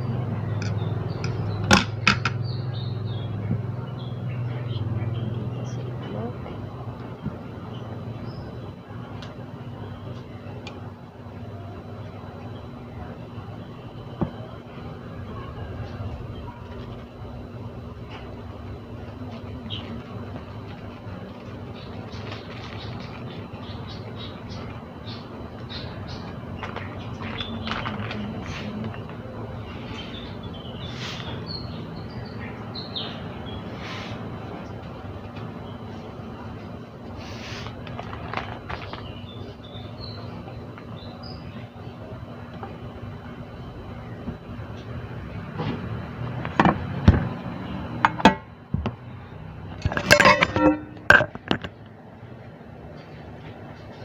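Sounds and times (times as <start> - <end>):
birds chirping: 0.0 - 37.1, 38.2 - 44.4
steady low hum: 0.0 - 54.0
handling clicks and rustles: 37.6 - 39.2, 49.7 - 51.9
dishes and utensils clinking: 49.8 - 51.7.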